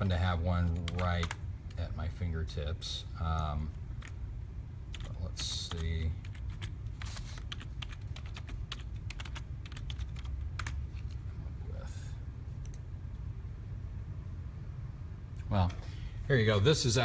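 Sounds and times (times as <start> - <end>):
computer keyboard typing: 0.6 - 1.8, 3.4 - 4.2, 4.9 - 11.2, 12.6 - 12.9.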